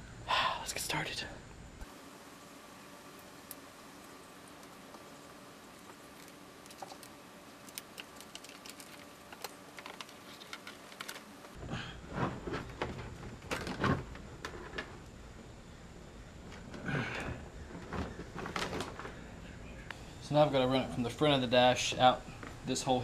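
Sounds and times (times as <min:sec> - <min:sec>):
wire ticking and clicking: 0:05.7 - 0:11.5.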